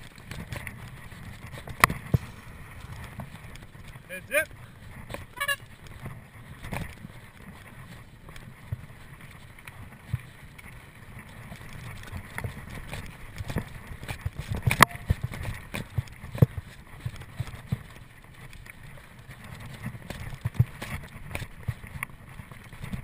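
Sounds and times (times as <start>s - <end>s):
bike knocking and rattling: 0.0s - 23.0s
sharp crack: 1.8s - 5.4s
low rumble: 2.0s - 5.5s.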